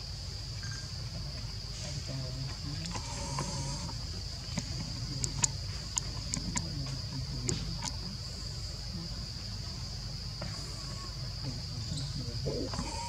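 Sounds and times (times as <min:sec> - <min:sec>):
insect drone: 0:00.0 - 0:13.0
sharp clicks: 0:04.5 - 0:06.7.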